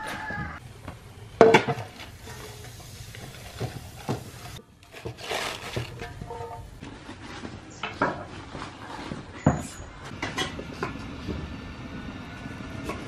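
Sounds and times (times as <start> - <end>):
cabbage leaves rustling: 3.3 - 7.4.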